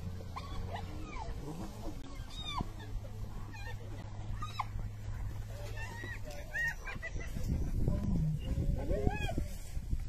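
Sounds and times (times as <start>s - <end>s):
hyenas giggling: 5.9s - 9.1s.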